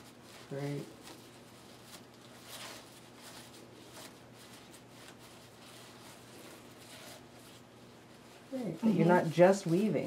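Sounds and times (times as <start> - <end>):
low steady hum: 0.0 - 10.0
ribbon rustling through strings: 0.0 - 10.0.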